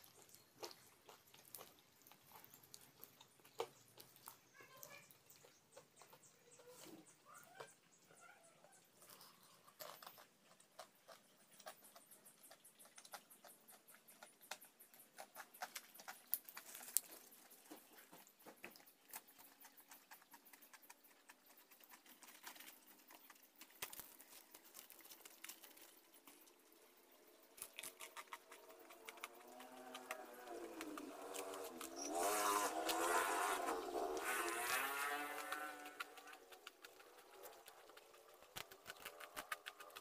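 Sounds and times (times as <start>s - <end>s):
crispy food crunching: 0.0s - 6.2s, 8.7s - 40.0s.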